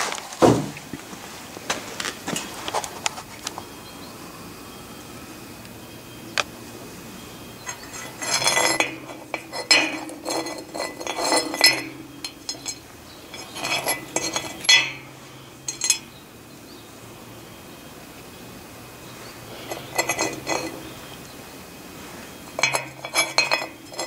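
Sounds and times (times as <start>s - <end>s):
steel blocks clinking: 7.6s - 16.1s, 19.5s - 21.0s, 22.5s - 24.0s
metal set down on wood: 7.7s - 15.1s.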